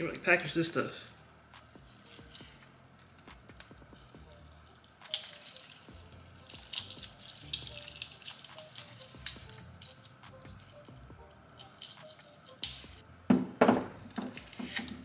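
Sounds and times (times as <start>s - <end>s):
plastic packaging crinkling: 4.0s - 10.9s, 11.5s - 13.0s.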